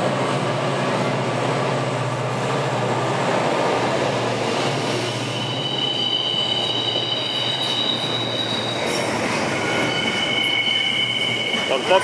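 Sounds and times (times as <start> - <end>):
locomotive drone: 0.0 - 12.0
high wheel squeal: 4.8 - 12.0.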